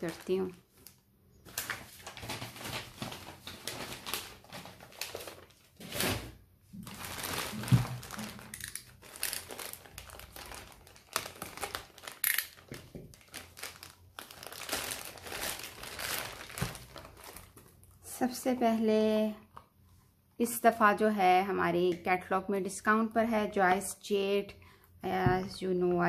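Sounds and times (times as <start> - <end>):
plastic bag crinkling: 0.0 - 18.0.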